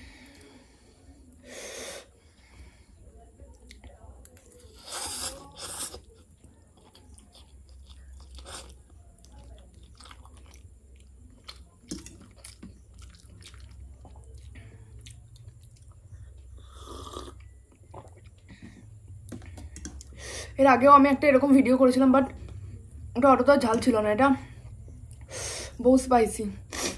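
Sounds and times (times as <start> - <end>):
person chewing noodles: 4.7 - 20.1.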